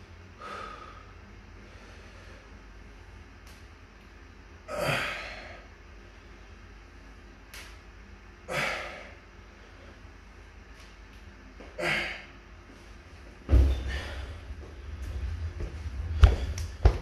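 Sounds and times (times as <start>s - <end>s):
dumbbells thudding on rubber mat: 13.5s - 14.2s.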